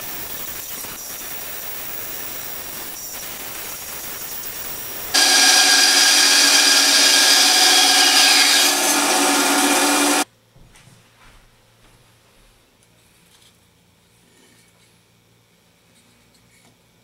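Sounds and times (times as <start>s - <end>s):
band saw cutting wood: 5.1s - 10.2s.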